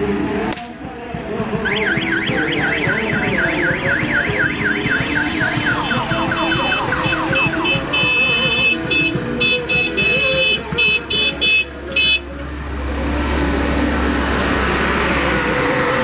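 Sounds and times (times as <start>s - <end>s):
crowd noise: 0.0s - 16.0s
electronic siren: 1.6s - 8.8s
high beeping tone: 1.6s - 9.1s.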